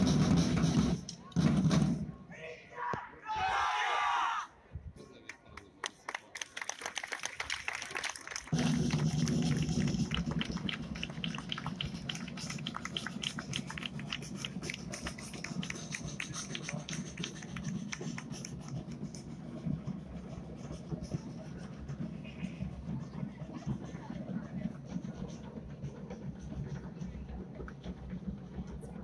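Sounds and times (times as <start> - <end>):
side drums beating fast strokes: 0.0 - 2.0, 8.5 - 29.0.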